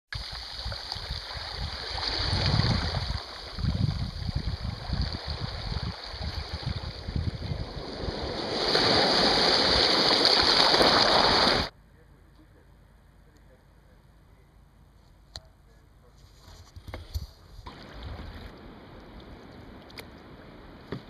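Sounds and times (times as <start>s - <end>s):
wind buffeting microphone: 1.0s - 9.0s
small waves splashing over stones: 8.0s - 11.7s.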